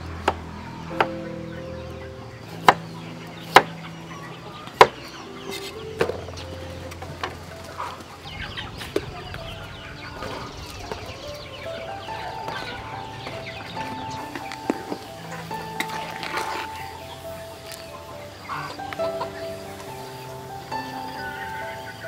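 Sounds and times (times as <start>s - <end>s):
chickens: 0.0s - 22.0s.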